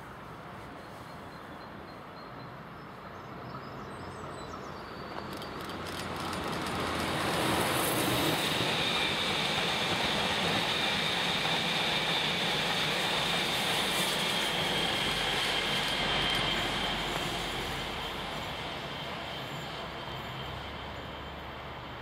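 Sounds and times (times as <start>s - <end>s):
train wheels rolling on rails: 5.0s - 22.0s.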